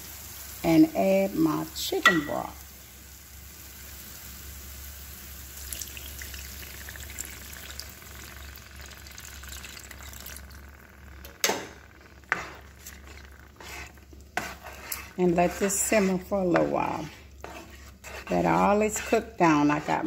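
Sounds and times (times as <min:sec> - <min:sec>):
broth pouring into sizzling pan: 0:00.0 - 0:15.9.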